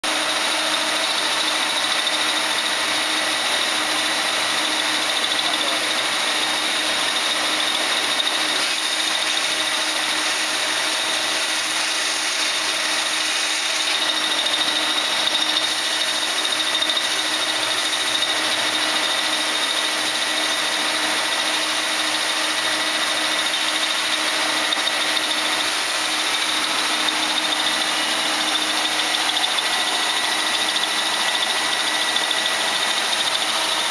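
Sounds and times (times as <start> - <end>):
lathe machine drone: 0.0 - 33.9
high constant whine: 22.6 - 33.9.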